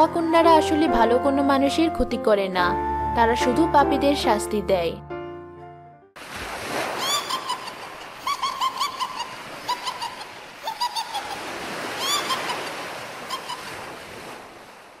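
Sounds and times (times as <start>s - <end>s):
sea waves washing on beach: 6.2s - 15.0s.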